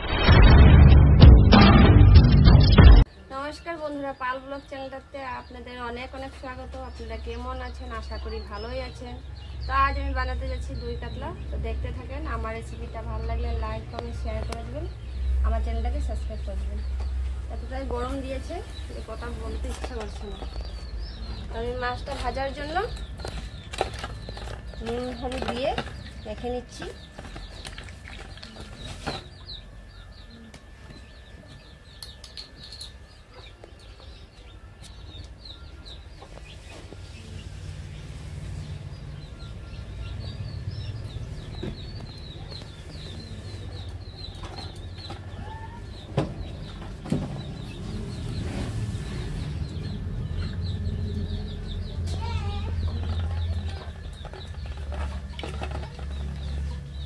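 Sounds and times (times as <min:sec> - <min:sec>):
small birds chirping: 0:02.5 - 0:57.0
low bird calls: 0:18.6 - 0:57.0.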